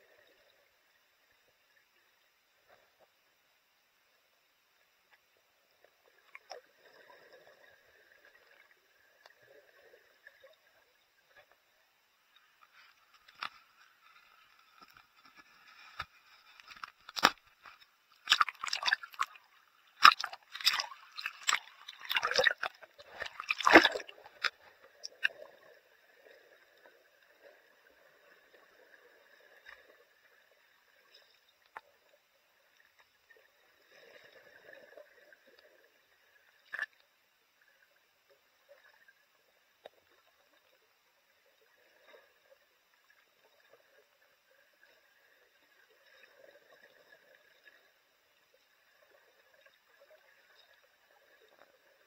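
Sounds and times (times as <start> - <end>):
soft ticks underwater: 0.0 - 52.0
sea water splashing: 18.2 - 30.1.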